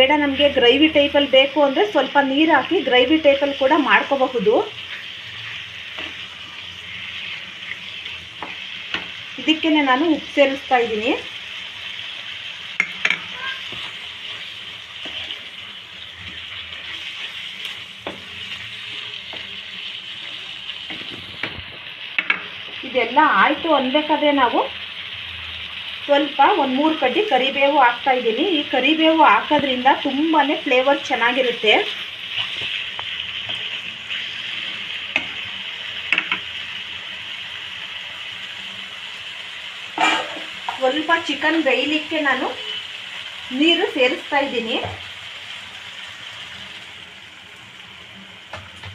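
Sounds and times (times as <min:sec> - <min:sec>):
food sizzling in a frying pan: 0:00.0 - 0:48.9
spoon clicking against pan: 0:12.8 - 0:13.3.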